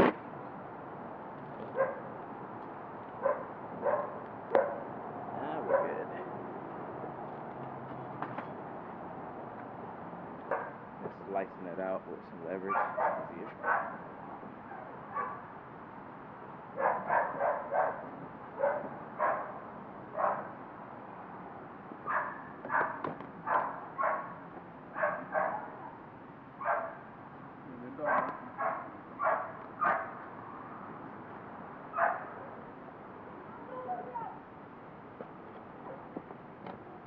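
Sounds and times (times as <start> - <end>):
dog barking: 1.8 - 2.1, 3.2 - 4.9, 5.6 - 6.1, 10.5 - 10.8, 12.7 - 14.0, 14.7 - 15.5, 16.8 - 20.6, 22.1 - 24.4, 25.0 - 26.0, 26.6 - 27.1, 28.0 - 30.2, 31.9 - 32.6, 35.8 - 36.1.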